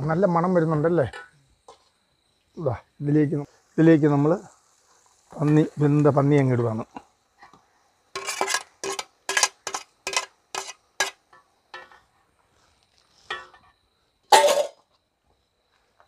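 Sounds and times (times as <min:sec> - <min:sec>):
metal ladle scraping a metal pan: 0:08.1 - 0:12.0.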